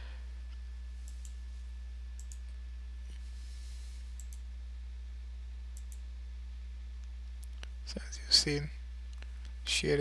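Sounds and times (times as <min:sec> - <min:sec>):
low electrical hum: 0:00.0 - 0:10.0
computer mouse clicking: 0:01.0 - 0:01.4, 0:02.2 - 0:02.5, 0:04.2 - 0:04.4, 0:05.8 - 0:06.0.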